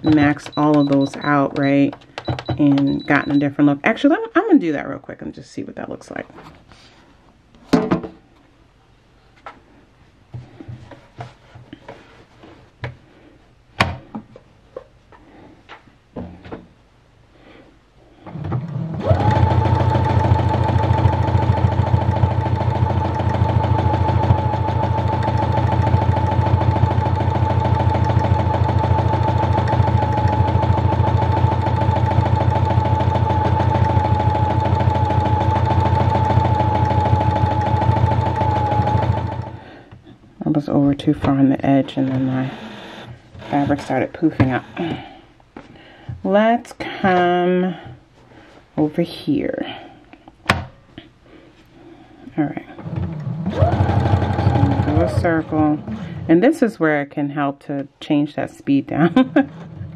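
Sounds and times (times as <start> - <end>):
sewing machine running: 18.3 - 39.6, 41.9 - 45.0, 52.8 - 56.0.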